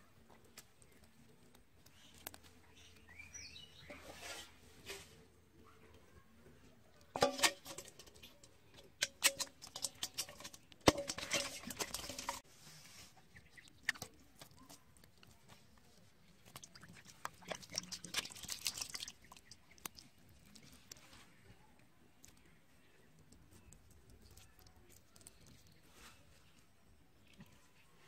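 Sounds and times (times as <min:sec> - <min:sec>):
fish flopping on wet grass: 0:16.6 - 0:20.0.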